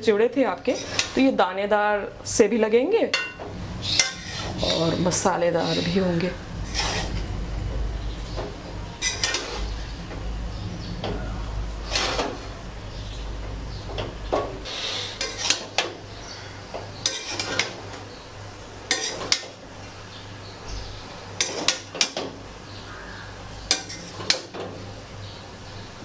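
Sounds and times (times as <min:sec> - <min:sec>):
spatula scraping metal wok: 0:00.6 - 0:01.3, 0:03.8 - 0:07.3, 0:09.0 - 0:09.9, 0:11.7 - 0:13.2, 0:14.0 - 0:18.0, 0:18.8 - 0:19.6, 0:21.4 - 0:22.2, 0:23.7 - 0:24.5.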